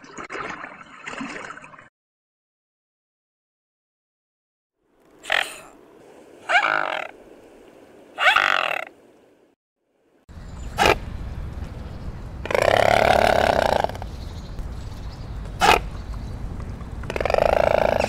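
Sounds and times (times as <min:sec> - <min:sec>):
swan calling: 0:05.2 - 0:05.8, 0:06.4 - 0:07.2, 0:08.2 - 0:09.0, 0:12.4 - 0:14.1, 0:17.0 - 0:18.0
low background rumble: 0:10.3 - 0:18.0.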